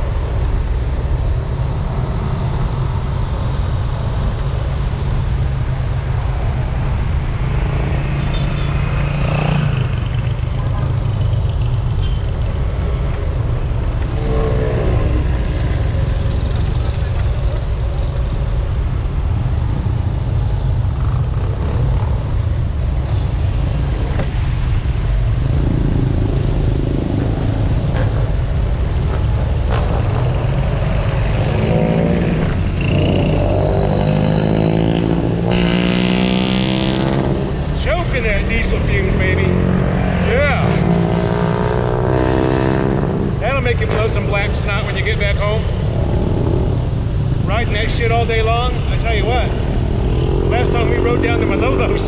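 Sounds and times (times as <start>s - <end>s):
motorcycle engine: 7.2s - 18.5s, 19.6s - 52.0s
engine revving: 25.3s - 48.2s, 49.1s - 52.0s.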